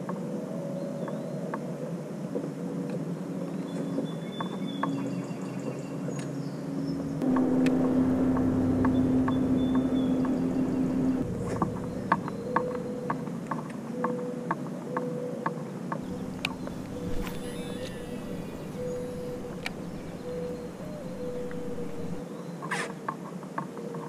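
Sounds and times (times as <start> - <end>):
electric motor humming: 7.2 - 12.3, 16.0 - 22.2.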